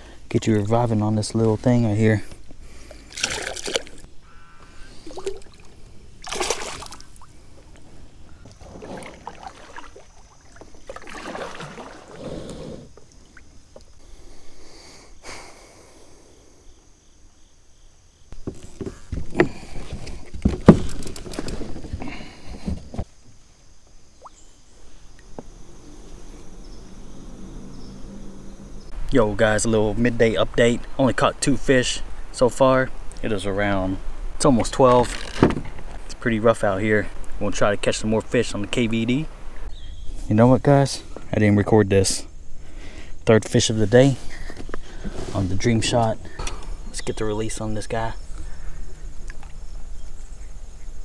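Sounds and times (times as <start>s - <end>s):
water sloshing against kayak: 2.6s - 14.0s.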